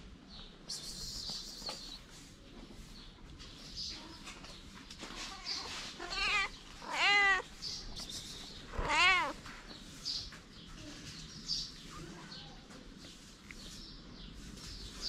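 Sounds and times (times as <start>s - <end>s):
cat meowing: 5.5s - 7.5s, 8.7s - 9.4s.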